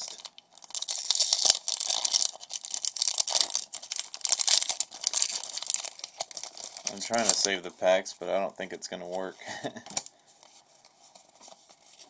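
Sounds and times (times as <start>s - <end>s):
foil wrapper crinkling and tearing: 0.0s - 7.7s.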